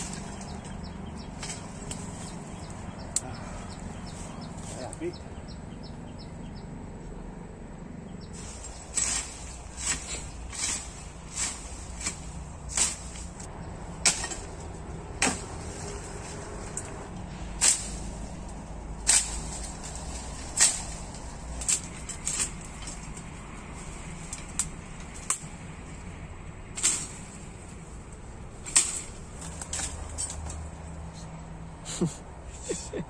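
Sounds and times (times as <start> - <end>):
machete chopping brush: 0.0 - 3.3, 8.4 - 23.3, 26.8 - 30.7.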